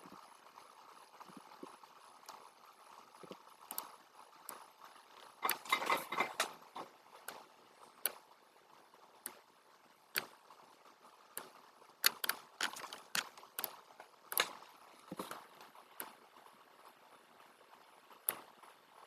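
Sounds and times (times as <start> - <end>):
computer mouse clicks: 3.2 - 4.6, 11.4 - 14.6.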